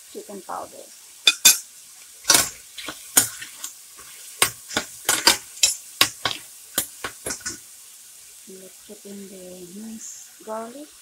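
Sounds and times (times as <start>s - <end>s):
faint sizzle: 0.0s - 11.0s
metal spoon scraping frying pan: 1.3s - 1.7s, 2.3s - 6.4s, 7.0s - 7.6s.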